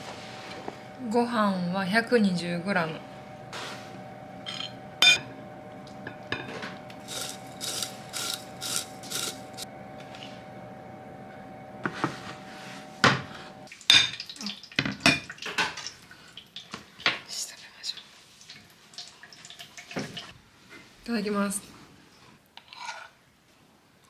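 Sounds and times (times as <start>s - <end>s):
soft scraping of tableware: 22.2s - 23.2s.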